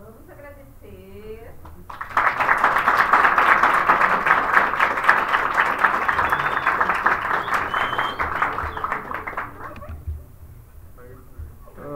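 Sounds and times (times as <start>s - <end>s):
audience applauding: 1.9s - 10.0s.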